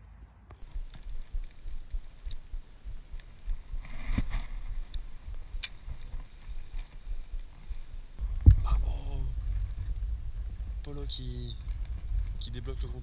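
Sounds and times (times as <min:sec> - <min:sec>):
low rumbling and bumping: 0:08.1 - 0:13.0.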